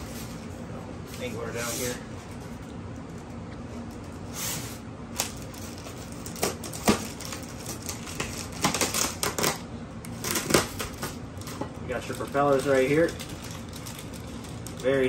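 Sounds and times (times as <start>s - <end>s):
plastic bags crinkling: 5.1s - 15.0s.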